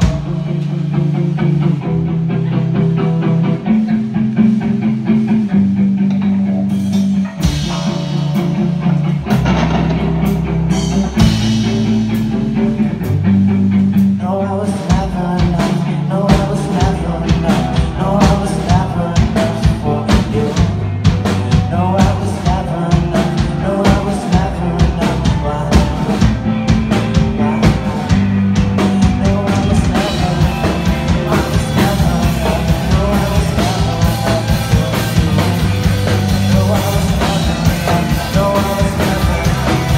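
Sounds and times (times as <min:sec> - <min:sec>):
drum kit playing hard: 0:00.0 - 0:39.9
electric guitars and bass: 0:00.0 - 0:39.9.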